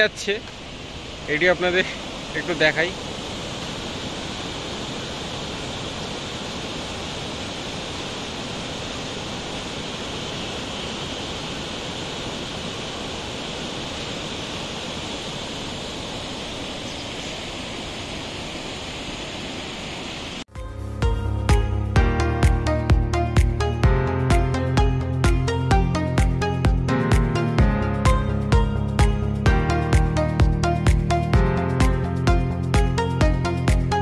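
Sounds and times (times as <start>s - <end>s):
river rushing over rocks: 0.0s - 20.4s.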